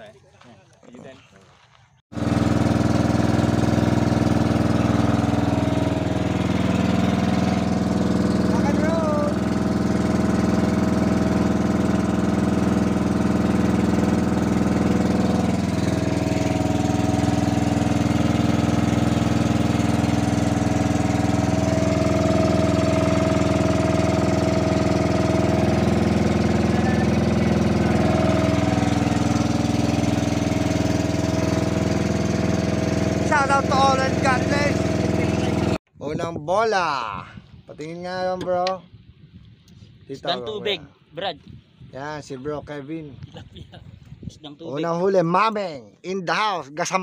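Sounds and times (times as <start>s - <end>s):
small boat engine running: 2.1s - 35.9s.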